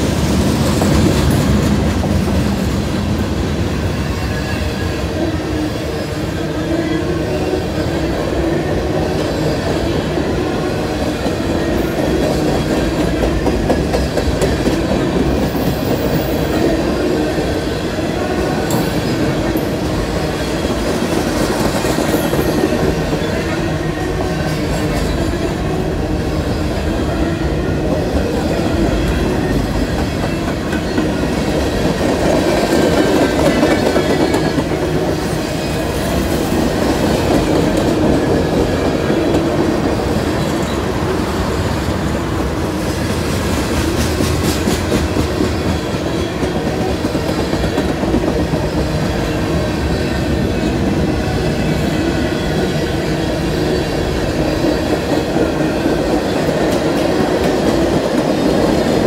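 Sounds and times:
freight train rumbling past: 0:00.0 - 0:59.0
train wheels clicking on rail joints: 0:09.0 - 0:17.3, 0:18.3 - 0:50.9.

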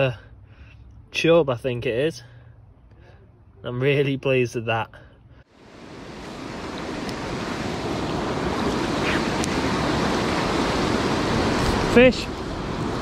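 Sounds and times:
water rushing over weir: 0:05.6 - 0:13.0.

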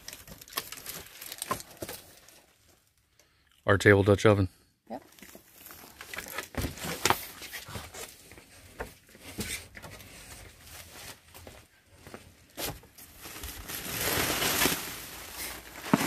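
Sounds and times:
plastic wrapping rustling: 0:00.0 - 0:03.0, 0:05.1 - 0:07.6, 0:12.6 - 0:16.0.

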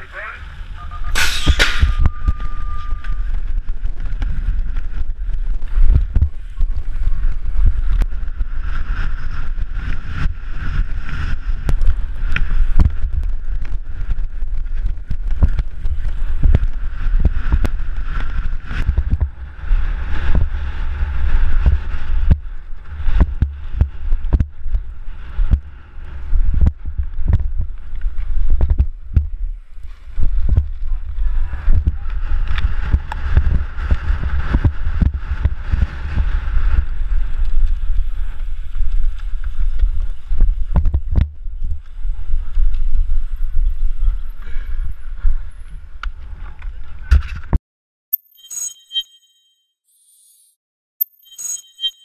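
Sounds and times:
wind buffeting microphone: 0:00.5 - 0:47.5
steady high beep: 0:01.8 - 0:03.3, 0:48.1 - 0:49.6, 0:51.0 - 0:52.0.

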